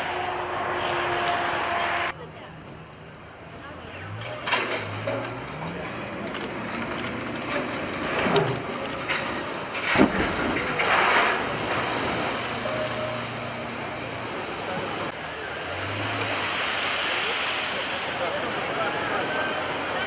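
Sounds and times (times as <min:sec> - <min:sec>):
waves washing: 0:07.0 - 0:20.0
rush of spray and water: 0:08.1 - 0:20.0
hull crashing into water: 0:09.3 - 0:13.0.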